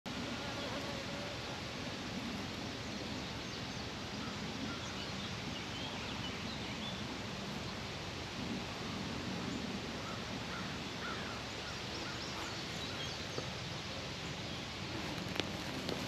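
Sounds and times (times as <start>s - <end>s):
outdoor background noise: 0.1s - 16.0s.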